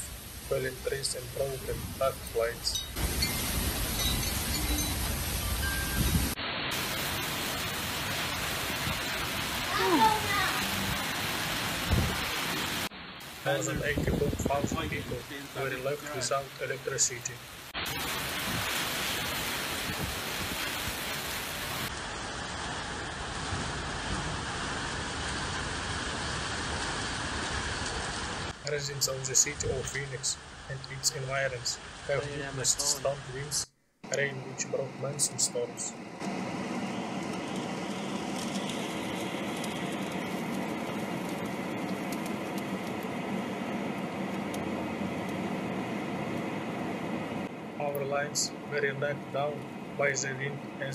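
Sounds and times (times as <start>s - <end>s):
heavy rain pouring: 0.0s - 33.6s, 34.2s - 50.9s
wind and road noise in car: 11.7s - 12.4s, 13.7s - 15.4s, 36.2s - 47.8s.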